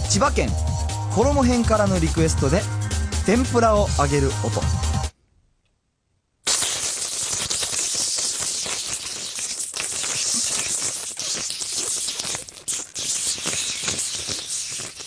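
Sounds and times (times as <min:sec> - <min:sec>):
man imitating frying sizzle: 0:06.5 - 0:15.0.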